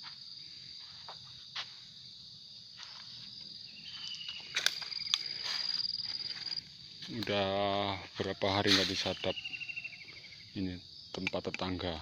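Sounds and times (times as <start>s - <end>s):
high-pitched insect trilling: 0.0s - 12.0s
lower insect tone: 0.0s - 12.0s
footsteps on dry leaves: 2.7s - 9.3s.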